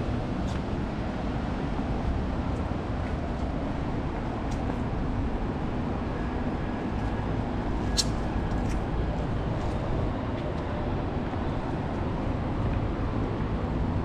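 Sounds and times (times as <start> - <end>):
low outdoor background rumble: 0.0 - 14.0
sharp click: 7.9 - 8.2.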